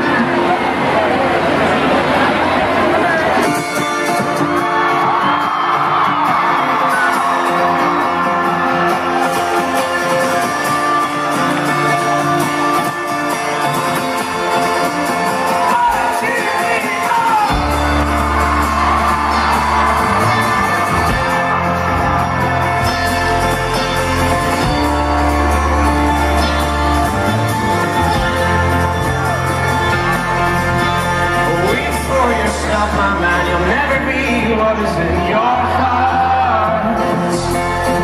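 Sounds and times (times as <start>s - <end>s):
acoustic guitar: 0.0s - 38.0s
keyboard: 0.0s - 38.0s
upright bass: 15.7s - 38.0s.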